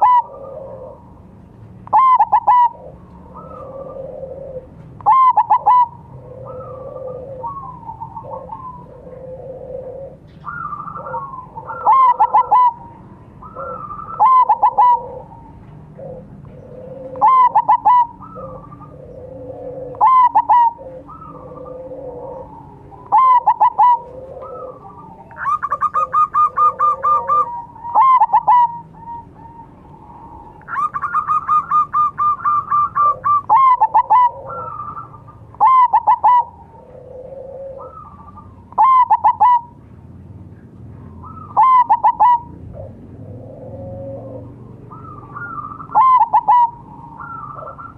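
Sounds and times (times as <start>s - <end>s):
dove cooing: 0.0s - 39.8s, 40.5s - 47.9s.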